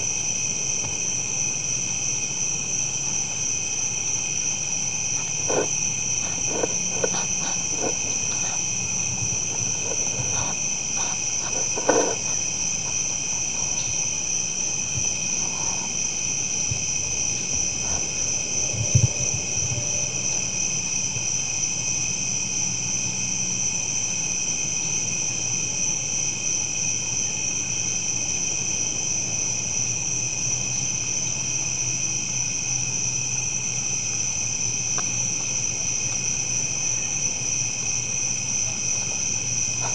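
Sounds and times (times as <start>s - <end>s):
faint low hum: 0.0s - 21.8s
night insects chirring: 0.0s - 39.9s.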